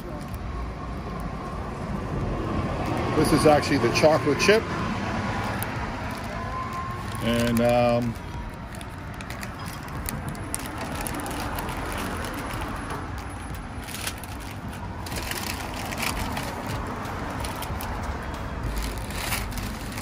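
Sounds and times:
plastic wrapping crinkling: 5.3 - 20.0.

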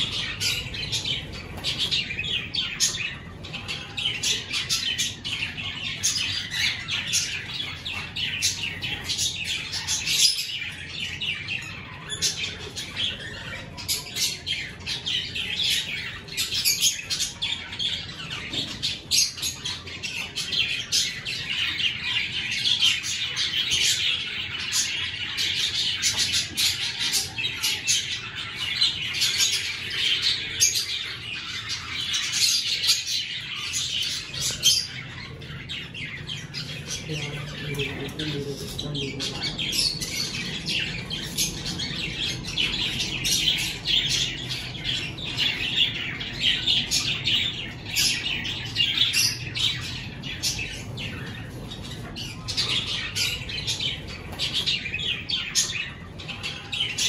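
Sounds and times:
cockatiels chirping and squawking: 0.0 - 57.0.

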